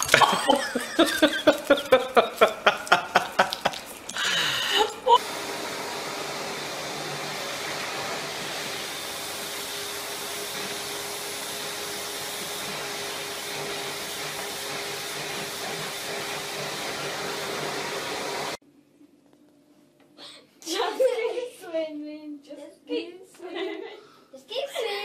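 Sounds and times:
vacuum cleaner running: 4.3 - 18.6.

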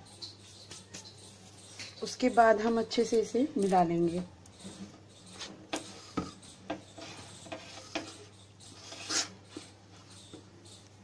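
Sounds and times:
fingers scraping flour in metal bowl: 5.3 - 10.4.

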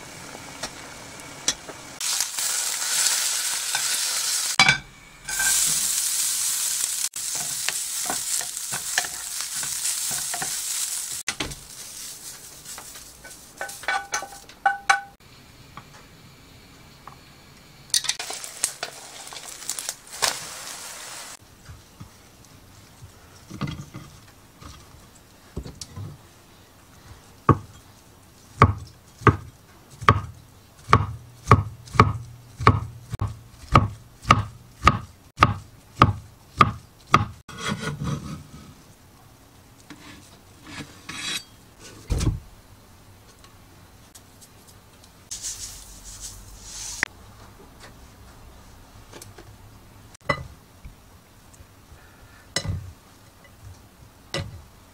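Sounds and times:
egg sizzling in pan: 0.0 - 13.7, 18.0 - 21.4
knife chopping on wooden board: 30.9 - 37.9.

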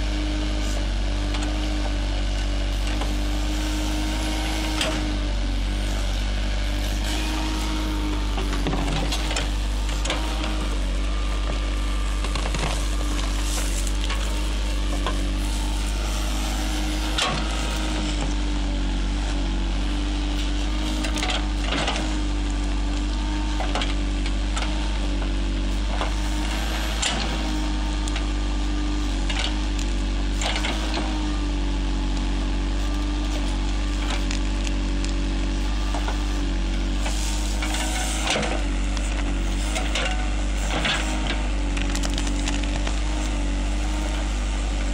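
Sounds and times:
diesel engine running: 0.0 - 44.9
roots and branches snapping: 11.3 - 18.4, 32.9 - 35.2, 40.8 - 43.4.

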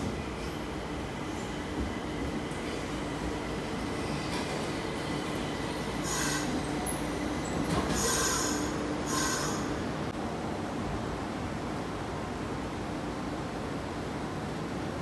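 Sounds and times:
train running noise: 0.0 - 10.2
wheels and brakes squealing: 3.8 - 10.1.

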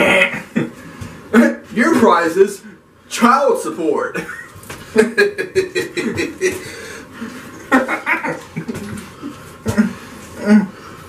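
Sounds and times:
men chuckling and laughing: 4.2 - 6.8, 7.5 - 10.0
muffled throat sounds: 8.4 - 10.8.

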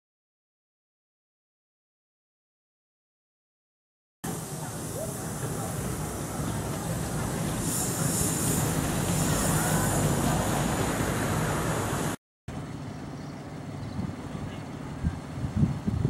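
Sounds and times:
miniature locomotive engine running: 4.3 - 12.2.

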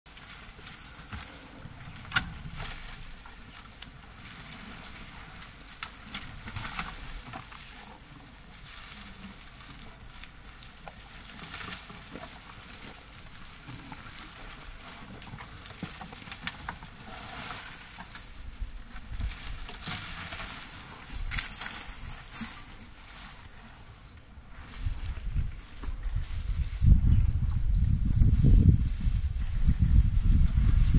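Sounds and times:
leaves rustling: 0.1 - 30.9
twigs crackling and snapping: 5.3 - 7.7, 8.6 - 22.7.

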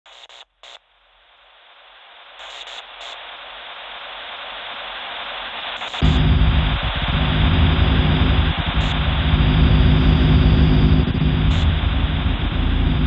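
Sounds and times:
static-like hiss: 0.1 - 13.0
loud low rumbling drone: 6.0 - 13.0.

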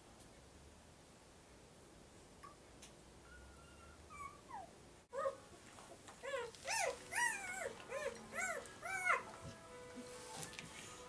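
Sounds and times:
puppies squeaking and whining: 3.3 - 5.4, 6.2 - 9.3.

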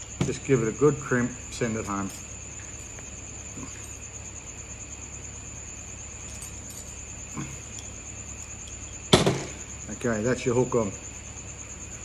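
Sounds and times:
insect pulsing trill: 0.0 - 12.0
handling of pliers and wire: 6.2 - 8.9.

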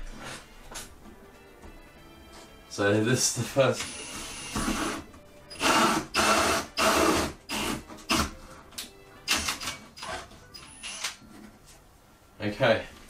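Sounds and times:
drill with hole saw cutting: 3.8 - 8.3, 9.3 - 11.2.

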